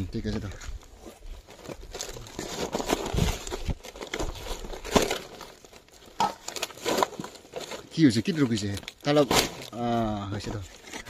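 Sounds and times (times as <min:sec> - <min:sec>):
palm leaf rustling and crinkling: 0:00.0 - 0:11.0
small crackles and snaps: 0:07.9 - 0:09.8.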